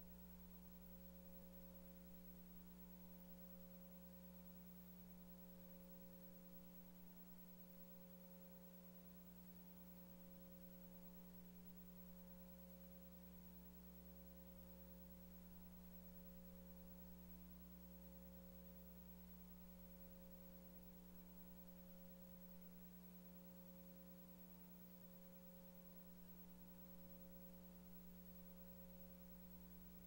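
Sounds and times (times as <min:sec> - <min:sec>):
faint electrical hum: 0:00.0 - 0:30.0.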